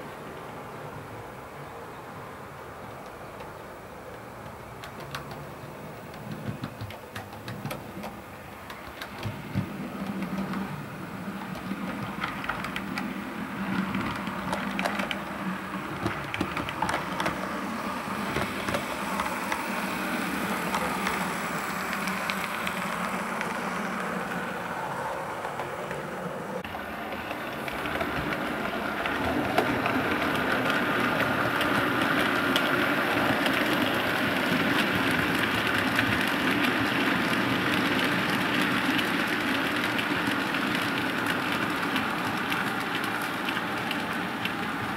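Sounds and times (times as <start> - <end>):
model train wheels clicking: 2.9 - 44.9.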